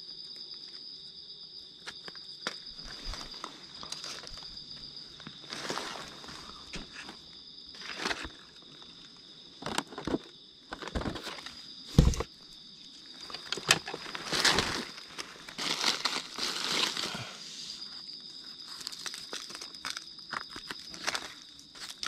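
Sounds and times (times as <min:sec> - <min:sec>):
high insect drone: 0:00.0 - 0:22.0
footsteps crunching leaf litter: 0:05.4 - 0:06.3, 0:14.0 - 0:17.2
thump: 0:11.9 - 0:12.3.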